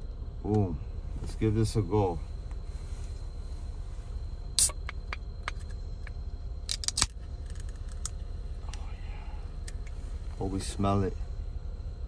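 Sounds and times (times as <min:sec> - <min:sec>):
low rumble: 0:00.0 - 0:12.0
drink can cracking open: 0:06.7 - 0:08.1.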